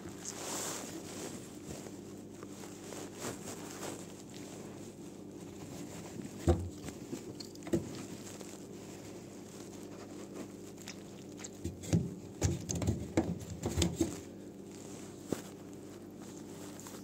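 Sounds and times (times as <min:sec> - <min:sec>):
steady low hum: 0:00.0 - 0:17.0
plastic knocks and scraping: 0:06.3 - 0:08.1, 0:11.6 - 0:14.2.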